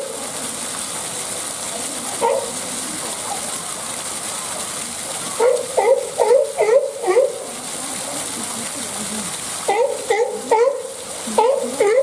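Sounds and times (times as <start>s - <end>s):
water gushing into pool: 0.0s - 12.0s.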